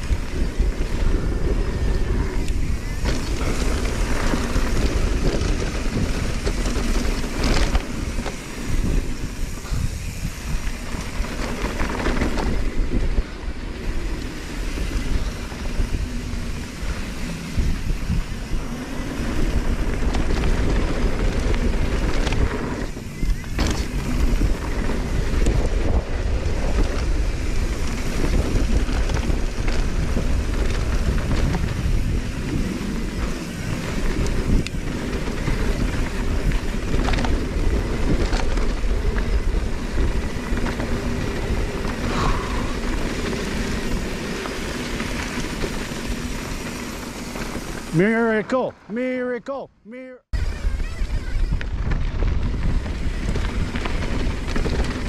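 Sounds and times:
bike clattering: 0:00.0 - 0:48.0
wind rumbling over microphone: 0:00.0 - 0:48.0, 0:50.3 - 0:55.0
bike tyres rolling over dirt and rocks: 0:00.0 - 0:48.5, 0:50.4 - 0:55.0.

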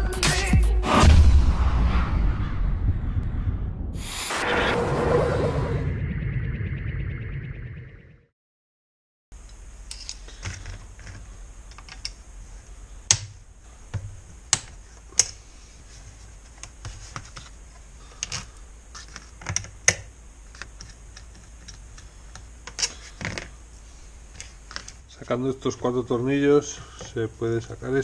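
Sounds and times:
low steady hum: 0:09.4 - 0:28.0.

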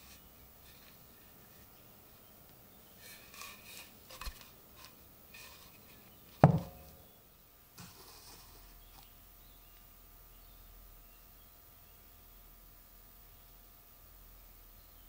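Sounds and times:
axe knocking on table: 0:06.4 - 0:07.0
small knocks: 0:06.4 - 0:07.0.

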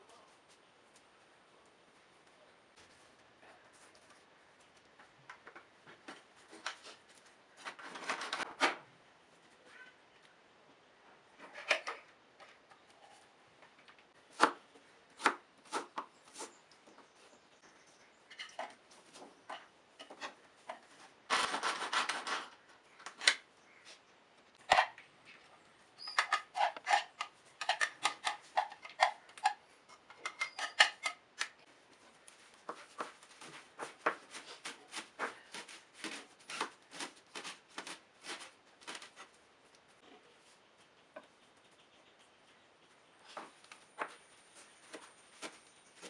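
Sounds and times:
knife chopping on plastic board: 0:15.2 - 0:16.5.

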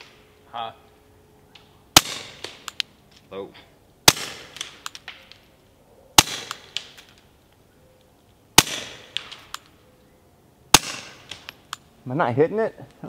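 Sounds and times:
suppressed pistol shots: 0:01.9 - 0:02.9, 0:04.0 - 0:05.4, 0:06.2 - 0:07.1, 0:08.6 - 0:09.7, 0:10.7 - 0:11.8.

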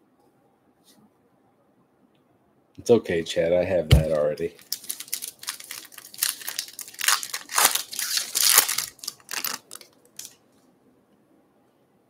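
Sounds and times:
wrapper tearing and crinkling: 0:04.6 - 0:10.4.

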